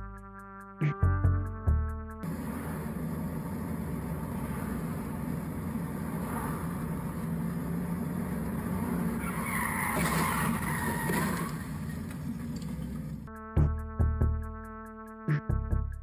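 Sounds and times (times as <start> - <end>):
car engine and road noise: 2.2 - 13.3
tyres screeching: 2.3 - 13.3.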